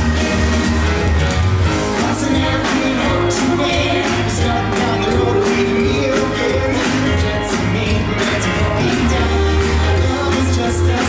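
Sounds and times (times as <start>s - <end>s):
pop-rock song with singing: 0.0s - 11.0s.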